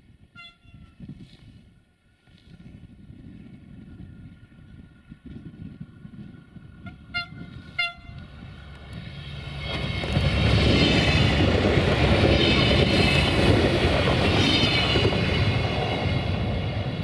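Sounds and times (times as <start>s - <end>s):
train horn toots: 0.4s - 1.0s, 6.8s - 8.3s
diesel train passing: 3.0s - 17.0s.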